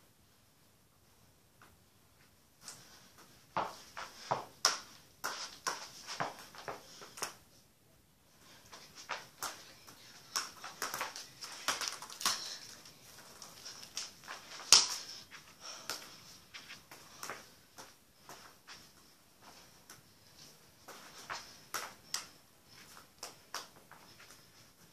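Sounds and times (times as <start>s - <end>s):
feet slapping the floor: 2.6s - 7.4s, 8.5s - 24.9s
football tapped by bare feet: 3.6s - 7.4s.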